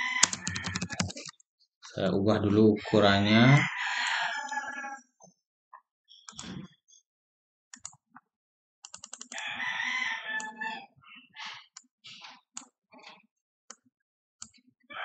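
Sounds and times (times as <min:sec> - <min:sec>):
rooster crowing: 0:00.0 - 0:00.9, 0:02.9 - 0:05.0, 0:09.4 - 0:10.8.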